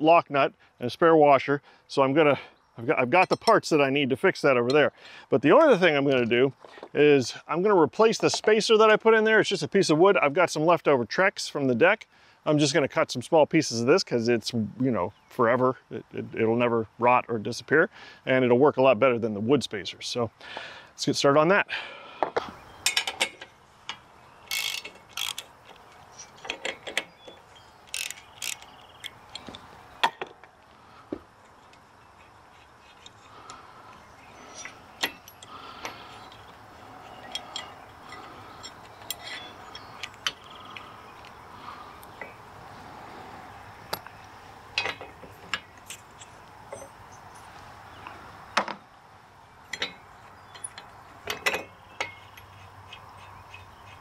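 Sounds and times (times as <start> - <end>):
metal clinks and knocks: 3.1 - 3.8, 22.8 - 30.5, 34.4 - 40.9, 44.7 - 47.6, 49.6 - 53.6
ratchet wrench clicking: 24.5 - 27.1, 27.8 - 29.4.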